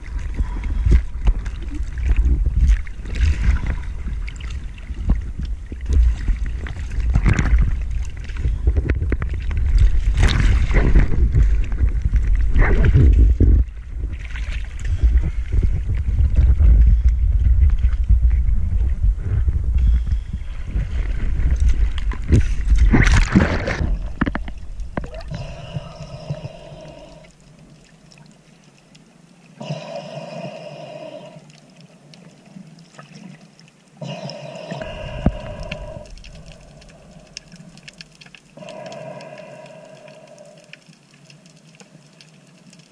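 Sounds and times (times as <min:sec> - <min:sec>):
sea water splashing: 0:00.0 - 0:16.2, 0:20.4 - 0:42.9
muffled underwater sound: 0:00.0 - 0:27.3, 0:34.0 - 0:40.8
low water rumble: 0:00.0 - 0:42.9.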